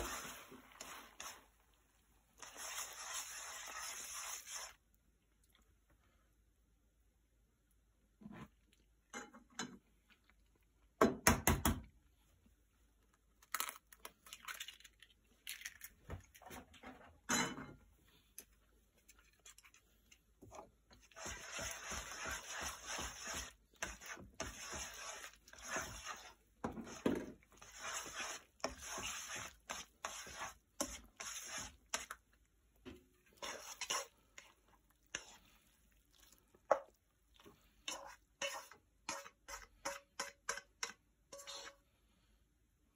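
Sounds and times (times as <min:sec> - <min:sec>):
wet scraping in frying pan: 0:00.0 - 0:04.9, 0:19.1 - 0:41.9.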